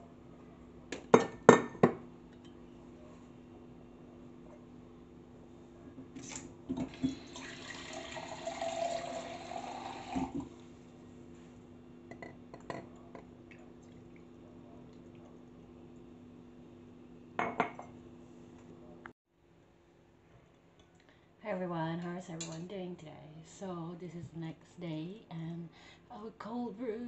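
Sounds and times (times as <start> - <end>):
liquid pouring over ice: 6.9 - 10.4
glass knocking on counter: 17.4 - 17.9.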